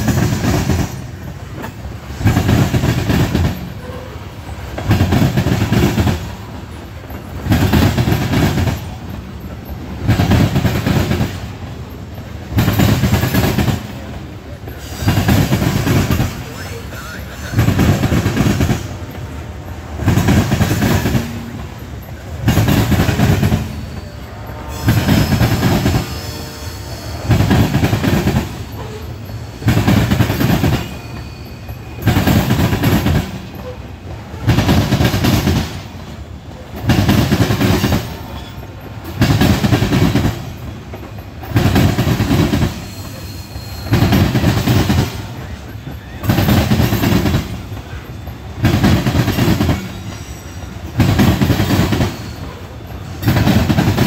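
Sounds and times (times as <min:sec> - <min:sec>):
train rolling noise: 0:00.0 - 0:54.0
train wheels rumbling and clacking: 0:00.0 - 0:54.0
faint high wheel squeals: 0:13.2 - 0:17.6, 0:21.0 - 0:34.5, 0:37.7 - 0:39.1, 0:40.5 - 0:53.4.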